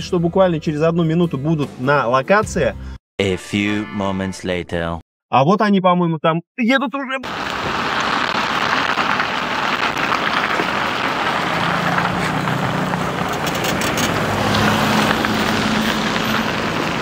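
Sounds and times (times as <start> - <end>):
car engine hum: 7.3 - 17.0
tyres hissing on wet road: 7.3 - 17.0.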